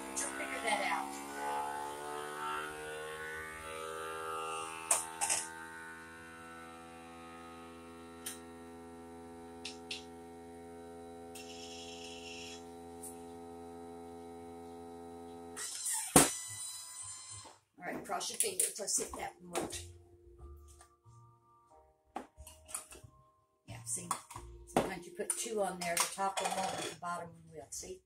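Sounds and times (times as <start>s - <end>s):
vacuum pump humming: 0.0s - 16.7s.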